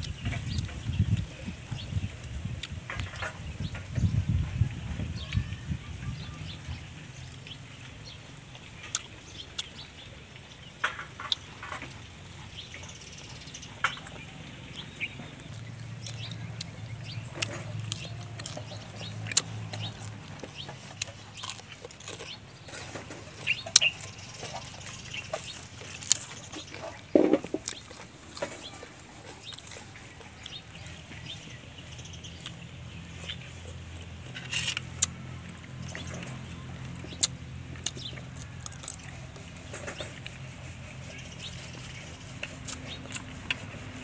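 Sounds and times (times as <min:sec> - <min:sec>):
person chewing and lip-smacking: 0:08.8 - 0:09.8, 0:14.0 - 0:22.4, 0:23.4 - 0:31.5, 0:32.3 - 0:33.8, 0:34.8 - 0:39.5, 0:41.4 - 0:43.8.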